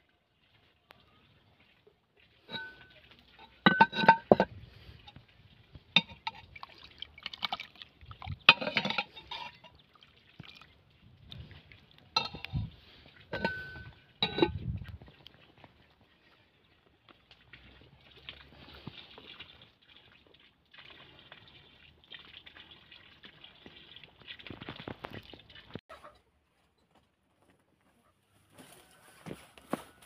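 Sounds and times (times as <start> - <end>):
metal spoon clinking on pots: 2.4 - 5.2, 6.0 - 6.6, 8.4 - 9.8, 12.2 - 12.7, 13.3 - 14.6
soup being stirred: 2.4 - 10.6, 11.3 - 14.7.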